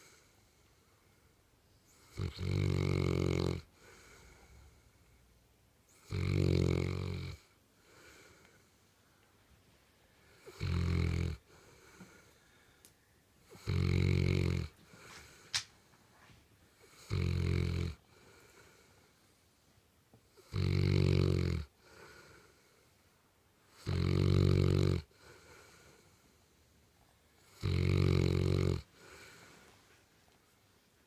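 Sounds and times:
dog snoring: 1.9s - 4.8s, 5.9s - 8.3s, 10.3s - 12.3s, 13.4s - 15.4s, 16.8s - 18.9s, 20.3s - 22.7s, 23.7s - 26.1s, 27.4s - 29.6s.

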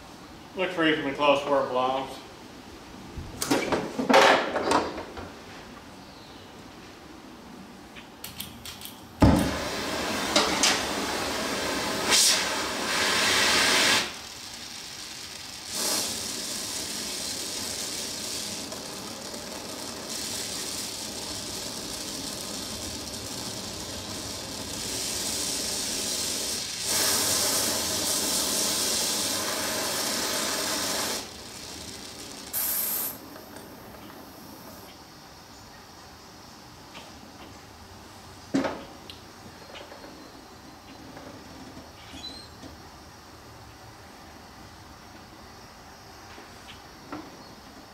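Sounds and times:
cutting torch flame hiss: 9.3s - 34.9s.

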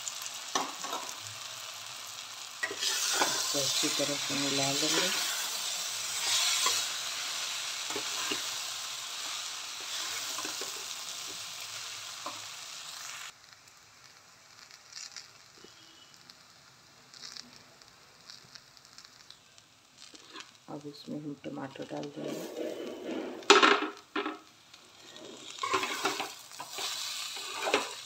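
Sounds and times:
food sizzling in pan: 0.0s - 28.0s
spatula scraping pan: 2.6s - 8.6s, 9.2s - 11.4s, 22.1s - 23.6s, 25.0s - 28.0s.

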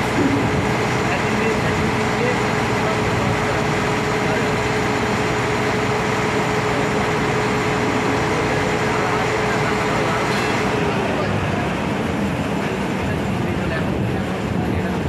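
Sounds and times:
boat engine humming: 0.0s - 15.0s.

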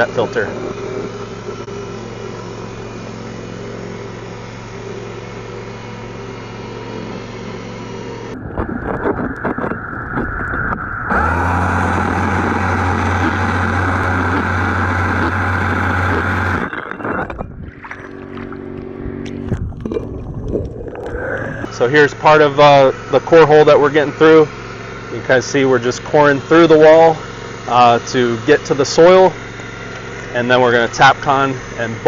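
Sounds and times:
core drill grinding concrete: 0.0s - 9.8s, 10.6s - 32.0s
mechanical hum: 0.0s - 32.0s.

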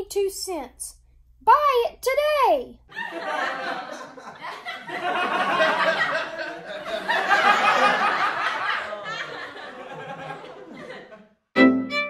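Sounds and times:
laugh track: 2.9s - 11.8s
fiddle tune: 11.6s - 12.0s.

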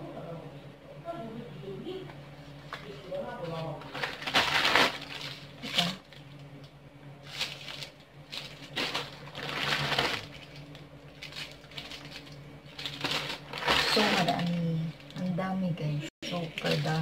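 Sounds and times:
low steady hum: 0.0s - 17.0s
plastic wrappers crinkling: 2.7s - 6.5s, 7.2s - 15.4s, 16.3s - 17.0s.

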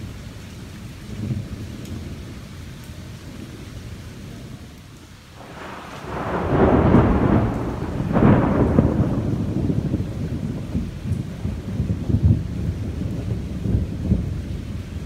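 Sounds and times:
sharp thunder crack: 5.4s - 14.4s
thunder rumbling: 5.4s - 15.0s.

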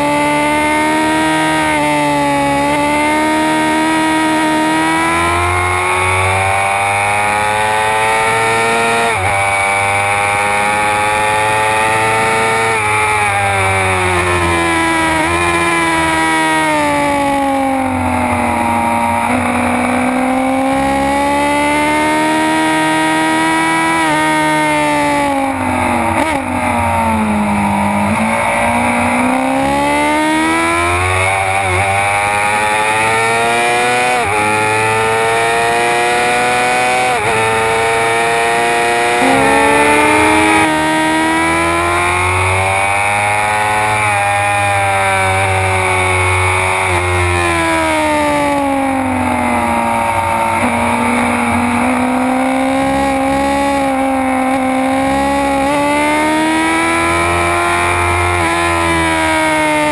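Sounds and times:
motorcycle engine revving: 35.0s - 44.0s.

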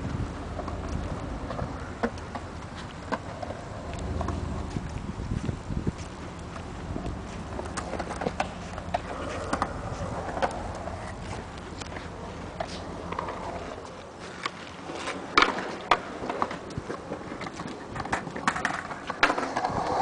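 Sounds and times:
skateboard clacks: 0.0s - 5.0s, 6.1s - 20.0s
skateboards rolling on concrete: 0.0s - 20.0s.

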